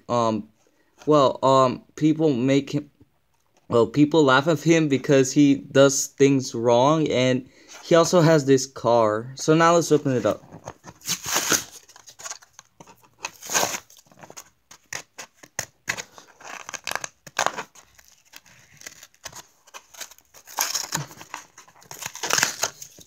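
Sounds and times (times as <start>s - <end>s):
cardboard ripping and crackling: 10.8s - 23.0s.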